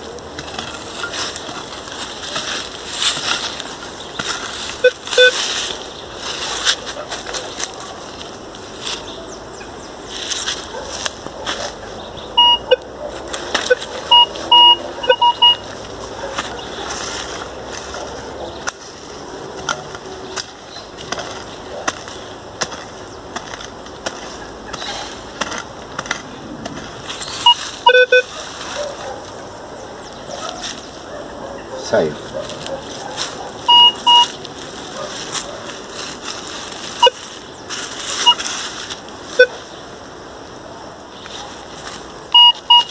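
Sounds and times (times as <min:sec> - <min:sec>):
dry leaves crackling: 0:00.0 - 0:42.9
metal detector beeps: 0:04.8 - 0:05.4, 0:12.4 - 0:12.9, 0:13.6 - 0:15.7, 0:27.4 - 0:28.3, 0:33.7 - 0:34.4, 0:37.0 - 0:37.2, 0:38.2 - 0:38.4, 0:39.4 - 0:39.6, 0:42.3 - 0:42.9.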